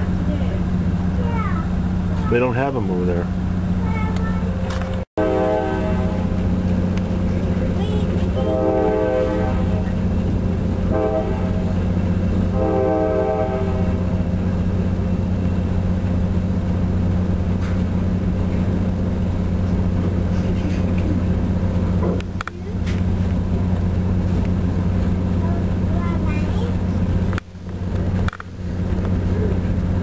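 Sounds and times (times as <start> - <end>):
train rumble: 0.0 - 30.0
train horn blasts: 5.2 - 6.5, 8.3 - 10.0, 10.8 - 14.3.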